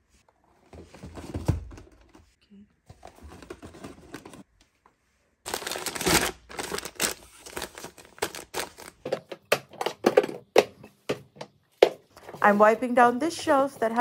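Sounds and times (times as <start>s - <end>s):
plastic packets crinkling: 5.5s - 9.5s.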